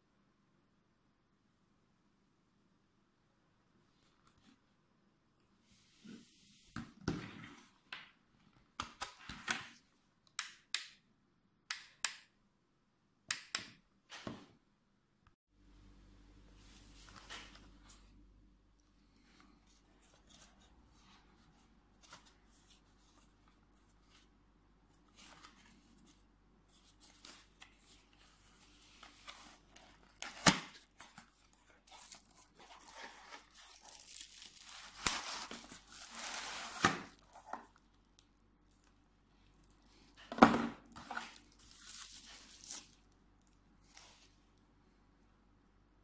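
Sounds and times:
bubble wrap crinkling: 28.8 - 38.9, 41.0 - 43.1.

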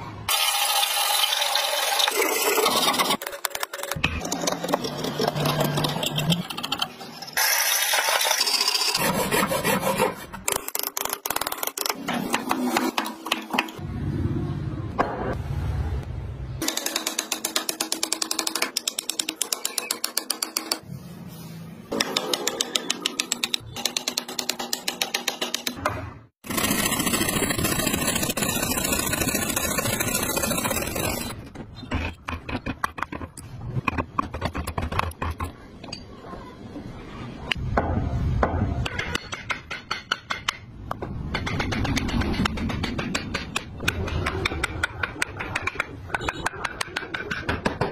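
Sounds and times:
saw cutting wood: 7.4 - 10.9, 26.4 - 31.4
chisel scraping wood: 9.0 - 13.6, 26.5 - 35.5
chisel tapping wood: 41.3 - 47.9.

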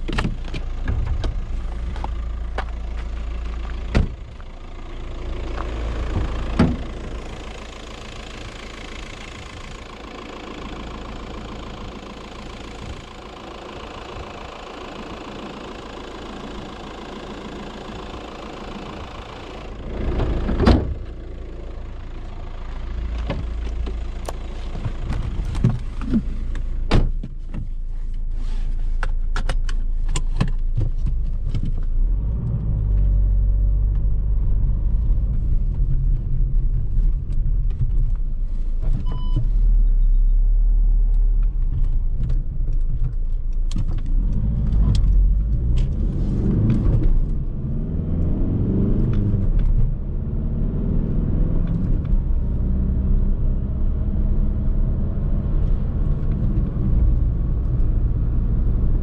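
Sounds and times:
diesel engine idling: 0.0 - 26.9
car low rumble: 0.0 - 59.0.

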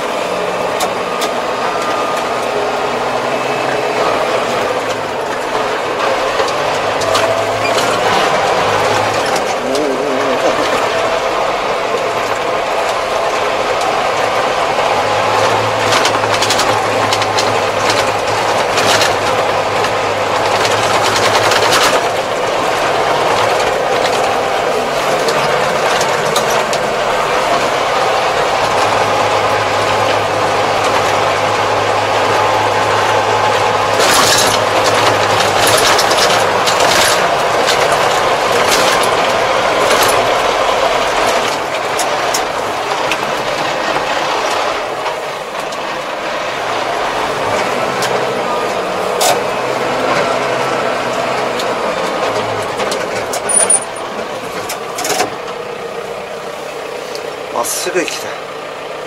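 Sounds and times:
tractor diesel engine running: 0.0 - 59.0
rattling clicks and knocks: 15.2 - 31.7, 32.3 - 45.9, 51.0 - 55.6.

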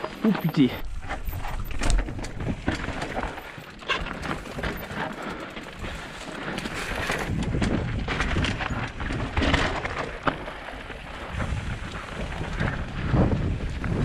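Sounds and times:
bike rattling: 0.0 - 14.0
bike tyres crunching on stones: 0.0 - 14.0
wind on microphone: 6.7 - 10.0, 11.1 - 14.0.

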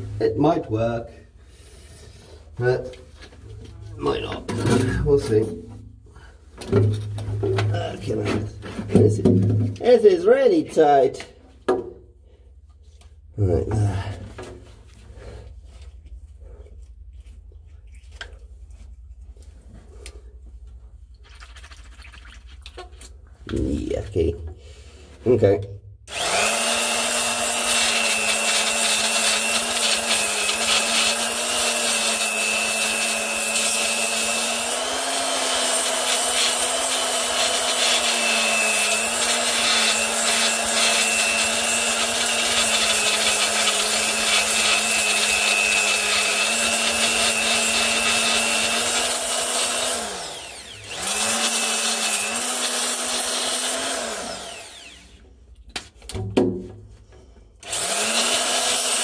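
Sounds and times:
electric grinder on steel: 26.1 - 55.2, 57.6 - 59.0.

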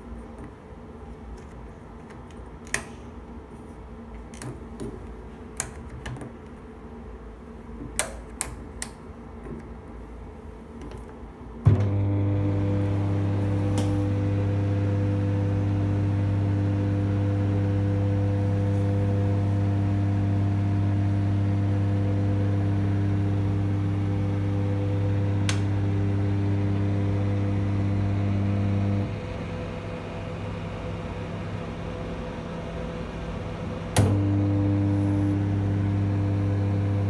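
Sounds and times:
microwave humming: 11.6 - 37.0
microwave switching on thump: 11.7 - 12.1, 25.4 - 25.9, 33.9 - 34.4.

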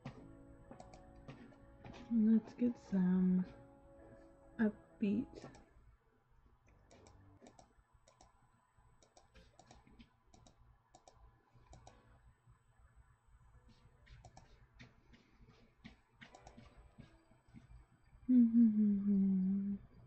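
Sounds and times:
computer mouse clicks: 0.8 - 1.0, 6.9 - 8.3, 9.0 - 12.0, 14.1 - 14.5, 16.2 - 16.7.

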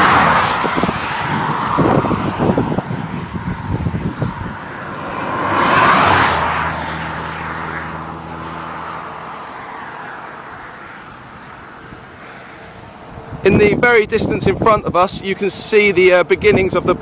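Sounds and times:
vehicle passing by: 0.0 - 13.5.

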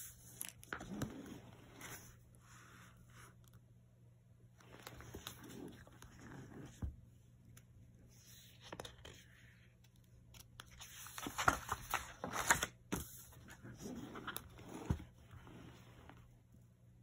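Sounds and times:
paper pages rustling: 8.2 - 9.4, 10.3 - 15.1.

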